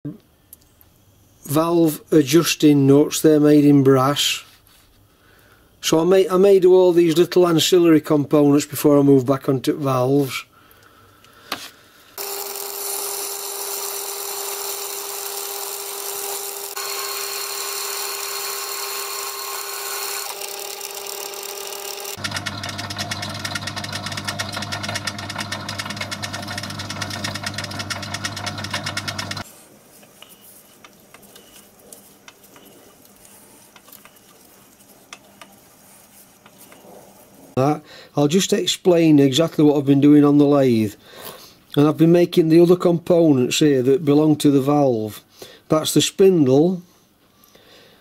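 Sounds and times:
metal lathe whining: 0:12.2 - 0:29.4.

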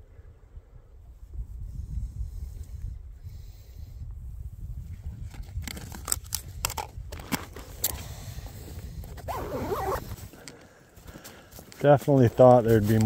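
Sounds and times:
backpack clicks and knocks: 0:05.4 - 0:08.0, 0:09.1 - 0:11.8
zipper pulled: 0:09.1 - 0:10.3.

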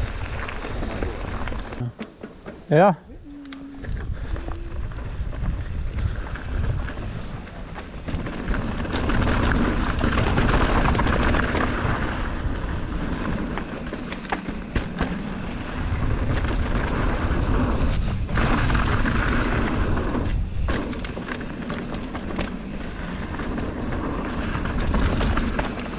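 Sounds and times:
bike knocking and rattling: 0:00.0 - 0:03.0, 0:03.7 - 0:25.9
bike tyres rolling: 0:00.0 - 0:25.9
wind on microphone: 0:03.2 - 0:13.3.

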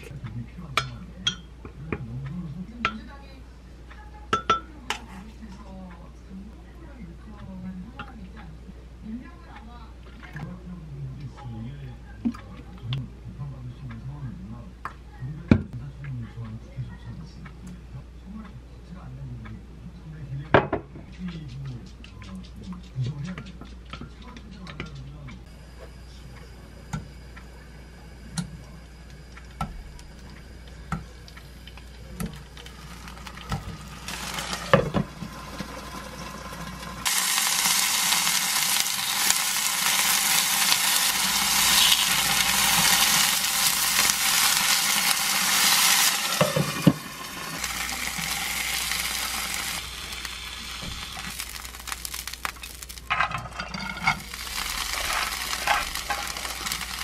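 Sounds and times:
tofu sizzling in oil: 0:30.8 - 0:53.1, 0:53.9 - 0:57.0.

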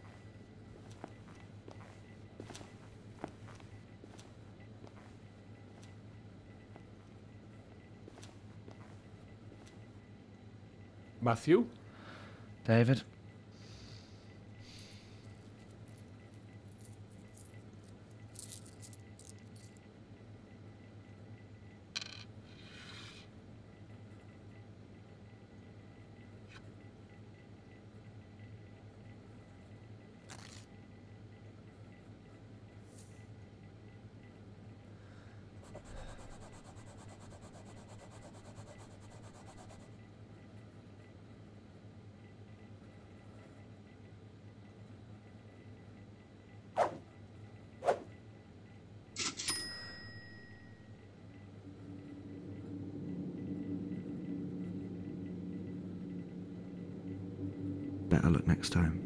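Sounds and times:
steady low hum: 0:00.0 - 0:49.2, 0:50.3 - 0:59.0
faint metallic clinks and rattles: 0:15.4 - 0:19.8
scratch card being scratched: 0:35.6 - 0:39.9.

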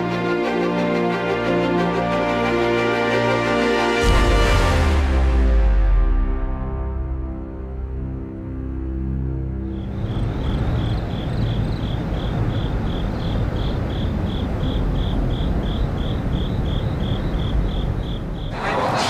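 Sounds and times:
crickets chirping: 0:09.6 - 0:19.0.

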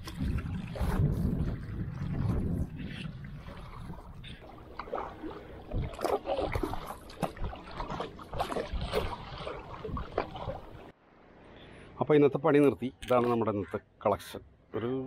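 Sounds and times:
paddle splashing through water: 0:00.0 - 0:10.9
water sloshing against hull: 0:00.0 - 0:11.0.

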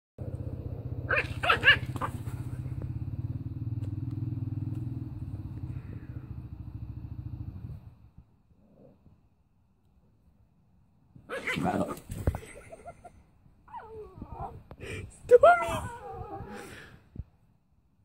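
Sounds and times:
puppy yapping: 0:01.1 - 0:02.6
dog growling: 0:11.3 - 0:12.2.

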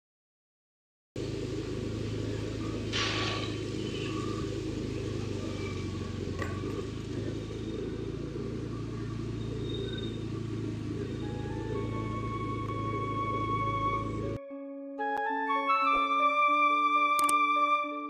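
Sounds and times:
vehicle engine running: 0:01.2 - 0:14.4
short hiss: 0:02.9 - 0:03.6.

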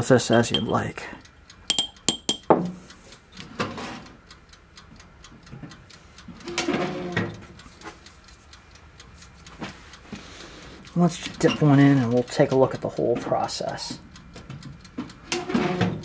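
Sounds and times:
mechanical timer ticking: 0:00.0 - 0:16.0
glass jar clinking: 0:00.3 - 0:01.0, 0:01.7 - 0:02.5.

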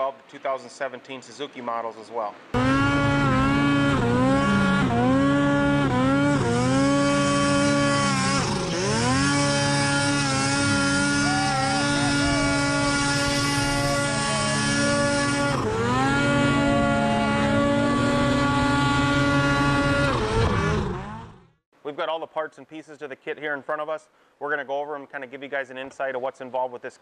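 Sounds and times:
snowmobile engine revving: 0:02.5 - 0:21.6.

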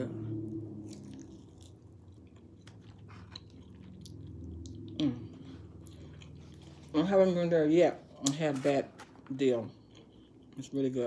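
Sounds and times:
person chewing food: 0:00.3 - 0:07.4, 0:09.7 - 0:10.8.

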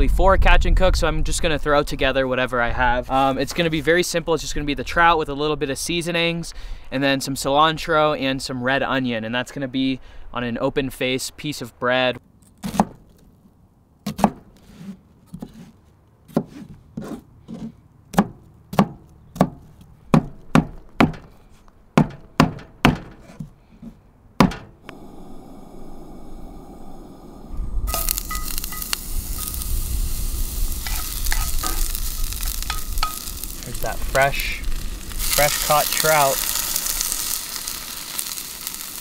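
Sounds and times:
onions sizzling in skillet: 0:27.8 - 0:39.0
wooden spatula stirring: 0:30.8 - 0:33.9.

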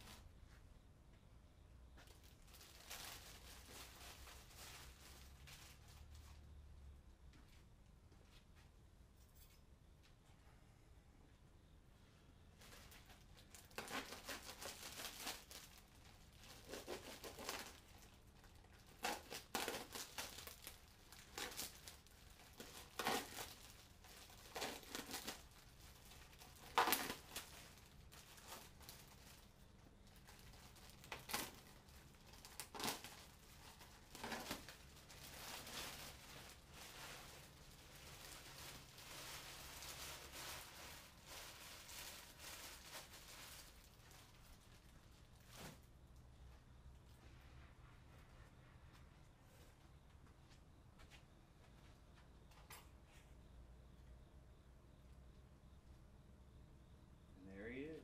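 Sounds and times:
plastic sheeting crinkling and tearing: 0:00.0 - 0:00.3, 0:02.0 - 0:06.4, 0:12.6 - 0:45.9.

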